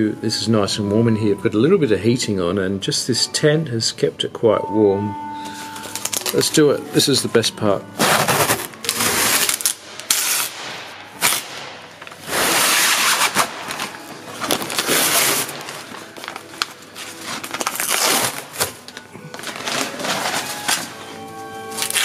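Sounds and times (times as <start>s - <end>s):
sheet peeling off ripping and crinkling: 8.0s - 21.0s, 21.7s - 22.0s.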